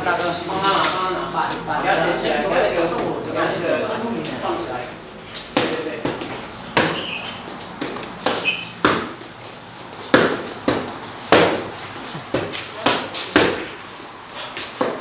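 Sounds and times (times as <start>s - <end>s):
punches slapping focus mitts: 5.6s - 7.0s, 7.8s - 9.2s, 10.1s - 11.6s, 12.2s - 13.7s.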